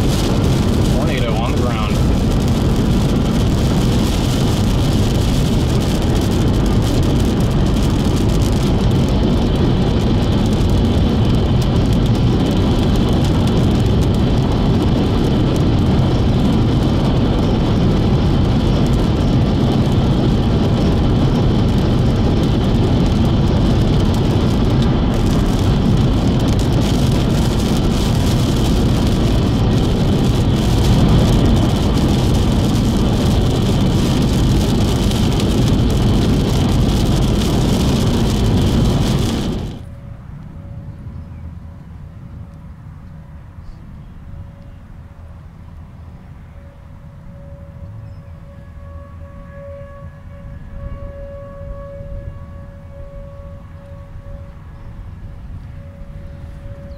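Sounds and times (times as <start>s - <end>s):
tyres on wet pavement: 0.0s - 40.4s
car engine: 0.0s - 41.0s.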